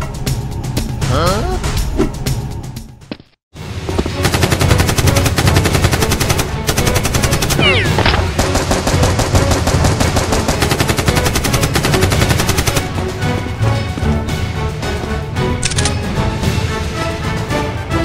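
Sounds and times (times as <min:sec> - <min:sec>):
machine-gun bursts: 0:04.2 - 0:12.9.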